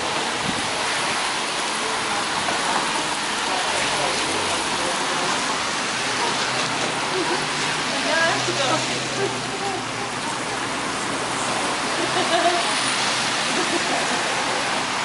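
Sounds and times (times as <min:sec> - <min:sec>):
rain splashing on pavement: 0:00.0 - 0:15.0.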